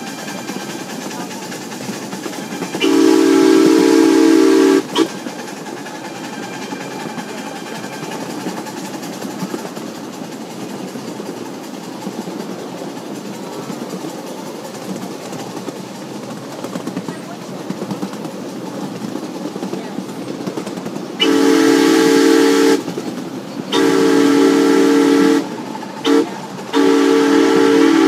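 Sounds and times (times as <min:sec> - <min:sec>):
train clattering along track: 0:00.0 - 0:28.0
steam locomotive whistle: 0:02.3 - 0:05.2, 0:21.2 - 0:22.9, 0:23.7 - 0:28.0.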